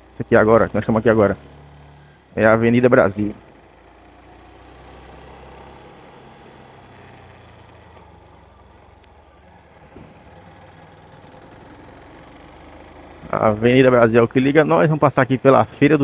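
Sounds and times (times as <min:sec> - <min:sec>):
motorcycle engine hum: 0:00.0 - 0:16.0
road and traffic noise: 0:00.0 - 0:16.0
light thump: 0:09.9 - 0:10.2.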